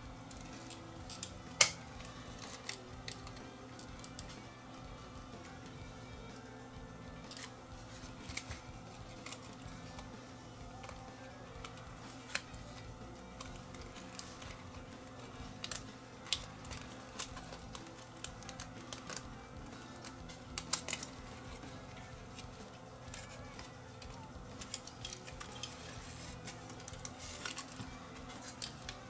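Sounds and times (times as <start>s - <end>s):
steady low hum: 0.0s - 29.0s
small parts clicking and tapping: 0.2s - 6.4s, 7.0s - 29.0s.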